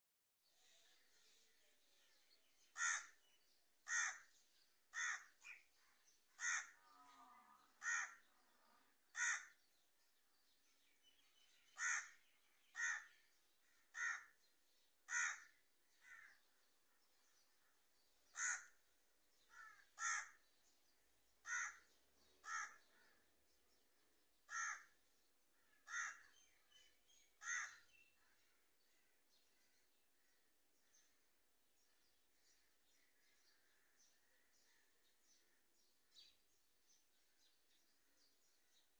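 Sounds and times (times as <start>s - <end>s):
crow cawing: 2.7s - 3.2s, 3.8s - 4.3s, 4.9s - 5.4s, 6.3s - 8.3s, 9.1s - 9.6s, 11.8s - 14.4s, 15.1s - 16.4s, 18.3s - 18.8s, 19.5s - 20.4s, 21.4s - 21.8s, 22.4s - 23.1s, 24.5s - 24.9s, 25.6s - 26.3s, 27.4s - 27.9s.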